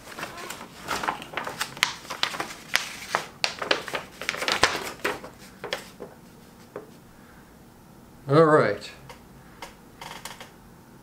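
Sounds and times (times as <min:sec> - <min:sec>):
paper rustling and crinkling: 0:00.0 - 0:07.0.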